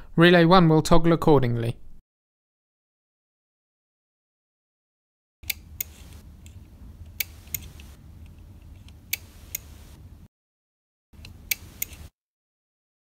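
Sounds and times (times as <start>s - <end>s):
low hum: 5.4s - 10.3s.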